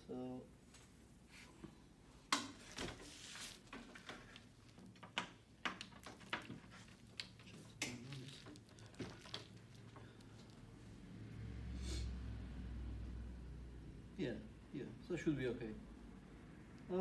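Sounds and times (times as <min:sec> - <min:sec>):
plastic sheet rustling: 0:02.5 - 0:10.8.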